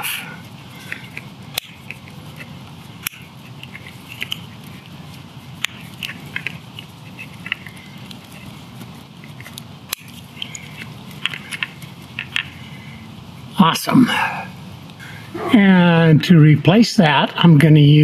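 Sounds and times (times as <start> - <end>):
sharp plastic snaps: 0.9 - 4.4.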